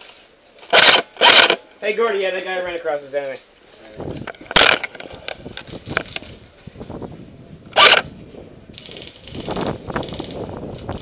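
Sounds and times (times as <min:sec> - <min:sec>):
gunfire bursts: 0:00.7 - 0:01.6, 0:07.8 - 0:08.0
rifle sling swivel rattling: 0:00.7 - 0:01.6, 0:04.2 - 0:06.3, 0:07.8 - 0:08.0.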